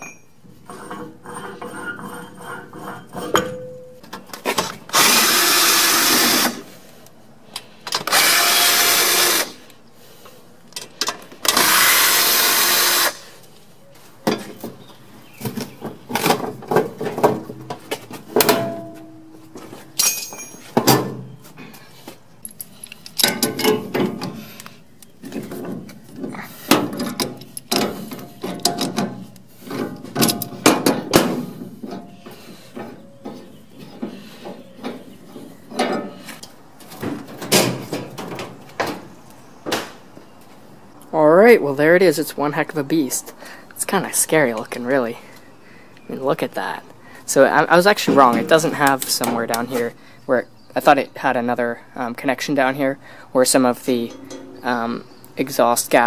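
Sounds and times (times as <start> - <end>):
sheet metal clanking and rattling: 0.0 - 4.7, 15.4 - 21.3, 23.2 - 24.4, 25.3 - 32.2, 53.9 - 55.3
power drill running: 4.9 - 6.6, 8.1 - 9.6, 11.5 - 13.2.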